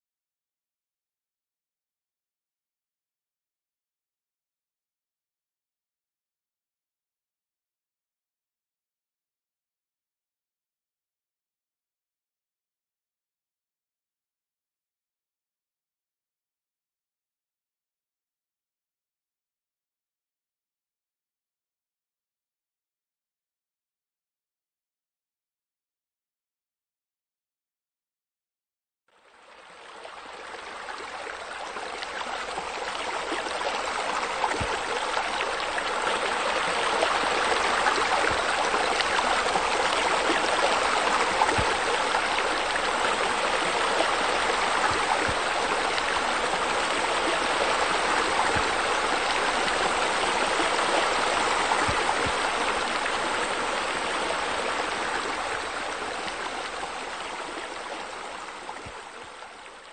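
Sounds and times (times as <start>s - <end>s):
water splashing from waterfall: 29.7s - 59.9s.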